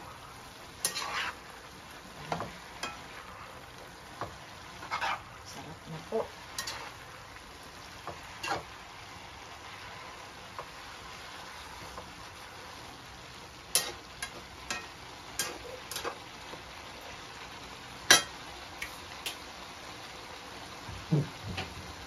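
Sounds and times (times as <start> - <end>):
vegetables sizzling in a wok: 0.0 - 22.0
spatula knocking and scraping pan: 0.8 - 1.4, 4.2 - 5.3, 8.0 - 8.7.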